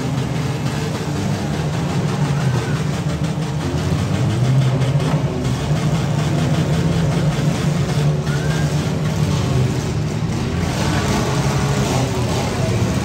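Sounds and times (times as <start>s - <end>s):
car engines droning: 0.0s - 13.0s.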